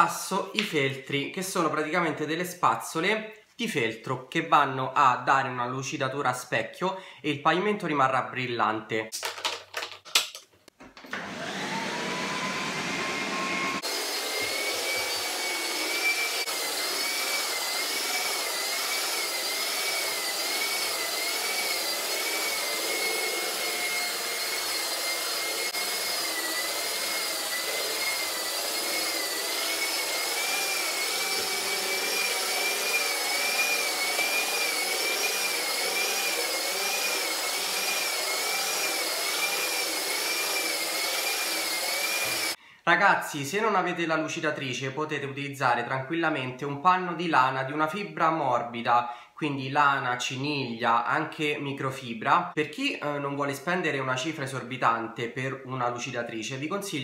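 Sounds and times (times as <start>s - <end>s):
floor polisher motor whine: 11.0s - 42.6s.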